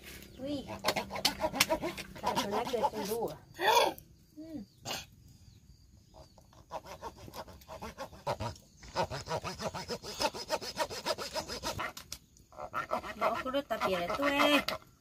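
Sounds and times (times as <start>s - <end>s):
tool rasping wood: 0.7s - 3.2s, 6.6s - 11.9s.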